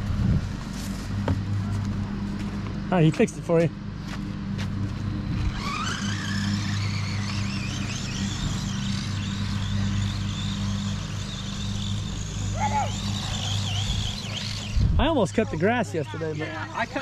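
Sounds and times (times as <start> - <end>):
steady low hum: 0.0 - 17.0
electric motor whining: 4.6 - 17.0.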